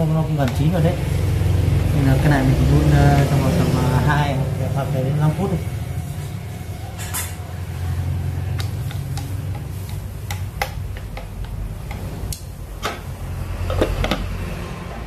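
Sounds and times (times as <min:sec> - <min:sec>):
chopsticks tapping clay pot: 0:00.4 - 0:00.6, 0:08.5 - 0:12.1.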